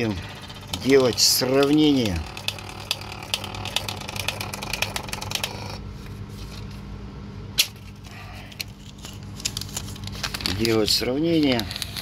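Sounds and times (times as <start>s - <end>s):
thermal printer clicking: 0.3s - 5.8s.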